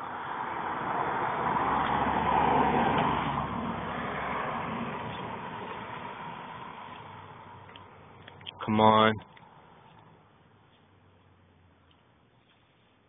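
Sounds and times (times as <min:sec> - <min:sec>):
car driving past: 0:00.0 - 0:08.7.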